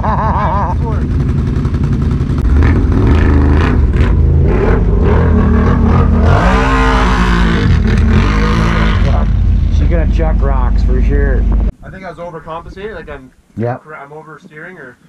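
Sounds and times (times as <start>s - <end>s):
atv engine revving: 0.0s - 11.7s.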